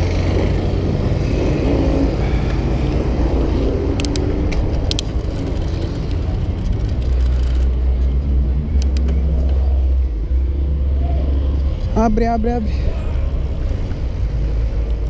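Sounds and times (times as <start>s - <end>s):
cars passing close by: 0.0s - 15.0s
sharp clicks: 8.7s - 9.2s.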